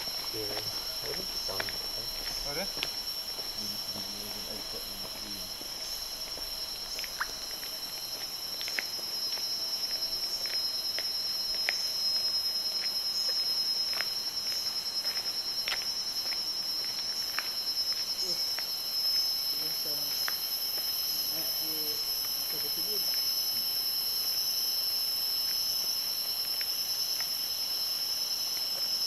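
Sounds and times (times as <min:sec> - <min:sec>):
high-pitched insect chorus: 0:00.0 - 0:29.0
short sharp insect chirps: 0:00.0 - 0:29.0.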